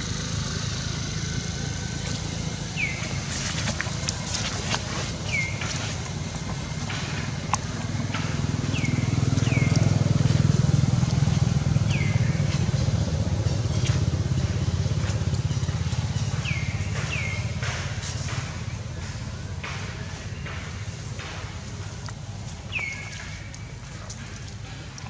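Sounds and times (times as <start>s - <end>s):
vehicle engine rumble: 0.0s - 25.0s.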